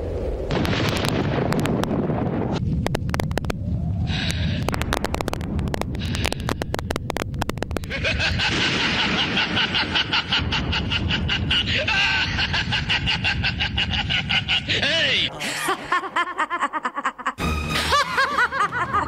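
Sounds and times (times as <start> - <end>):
low rumble: 0.0 - 14.8.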